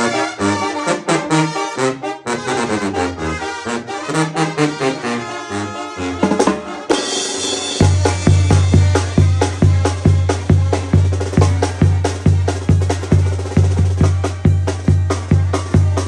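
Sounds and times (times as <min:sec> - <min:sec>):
brass section playing melody: 0:00.0 - 0:16.0
snare drum and timbales beat: 0:06.2 - 0:16.0.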